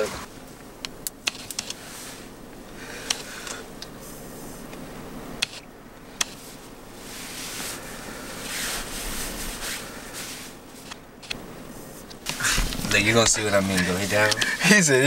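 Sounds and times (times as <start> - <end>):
breathy smoke exhale: 1.8 - 3.7, 7.5 - 8.9.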